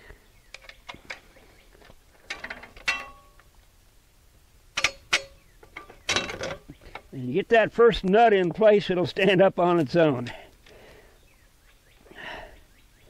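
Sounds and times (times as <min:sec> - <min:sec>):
bolts clinking against steel frame: 0:00.5 - 0:03.5, 0:04.7 - 0:07.1.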